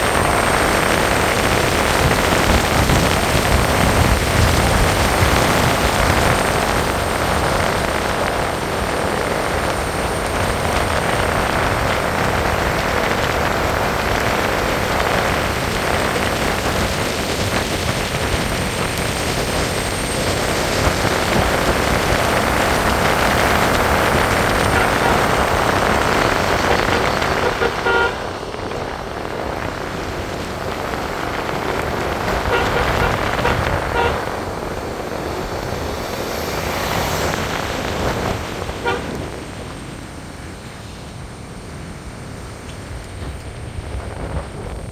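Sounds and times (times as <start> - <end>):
car driving on wet road: 0.0 - 44.9
short car horn toot: 27.4 - 28.3, 32.5 - 34.3, 38.8 - 39.2.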